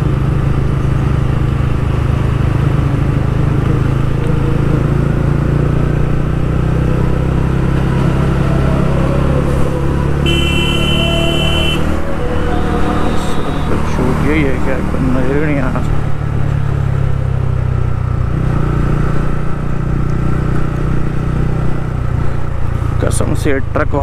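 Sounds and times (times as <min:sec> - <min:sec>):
motorcycle engine running: 0:00.0 - 0:24.0
shrill horn: 0:08.7 - 0:14.0.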